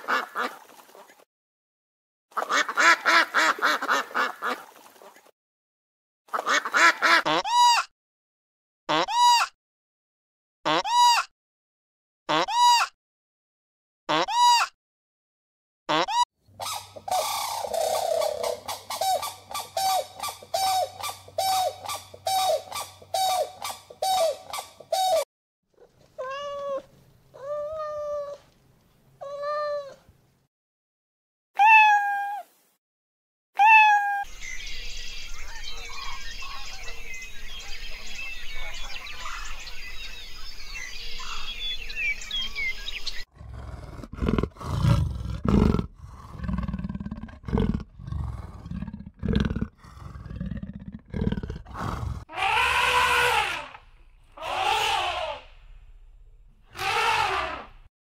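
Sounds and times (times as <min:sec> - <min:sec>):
cranes honking: 0:16.7 - 0:25.2, 0:52.3 - 0:55.8, 0:56.7 - 0:57.8
faint bird chirps: 0:34.3 - 0:43.3
wild cat growling low: 0:43.3 - 0:55.7.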